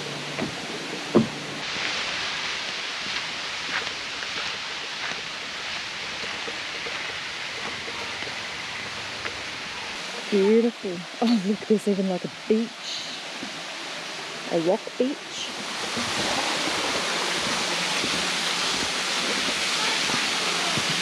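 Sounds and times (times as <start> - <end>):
creek and waterfall rushing: 0.0 - 21.0
footsteps on wooden boardwalk: 0.3 - 10.0, 15.7 - 21.0.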